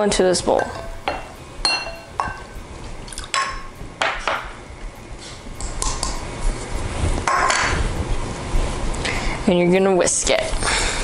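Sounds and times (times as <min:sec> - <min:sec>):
bowls clinking against a bowl: 0:00.5 - 0:04.5.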